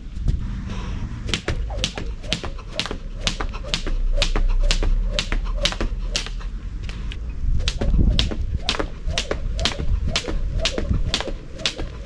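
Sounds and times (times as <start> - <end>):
skipping rope slapping ground: 1.3 - 12.0.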